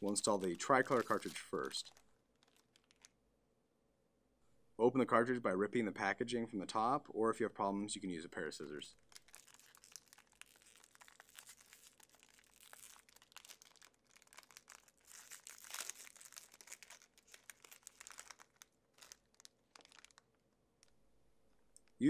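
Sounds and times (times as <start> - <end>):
wrapper crinkling and tearing: 0.0 - 3.2, 9.0 - 21.0.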